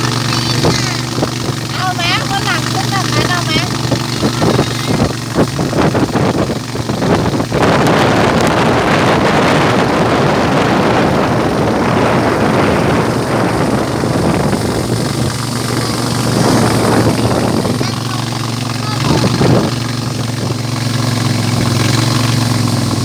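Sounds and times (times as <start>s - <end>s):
boat motor running: 0.0s - 23.0s
wind buffeting microphone: 0.0s - 23.0s.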